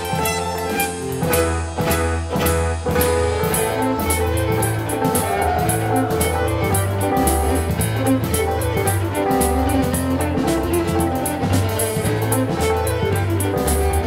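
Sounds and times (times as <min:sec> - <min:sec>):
digital piano chords: 0:00.0 - 0:14.0
drums keeping a beat: 0:00.0 - 0:14.0
fiddle lead: 0:00.0 - 0:14.0.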